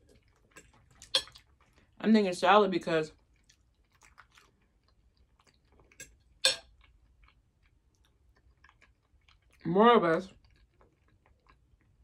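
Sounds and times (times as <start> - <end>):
person chewing food: 0.0 - 2.0, 3.2 - 9.7, 10.3 - 12.0
wet mouth clicks: 5.4 - 7.0.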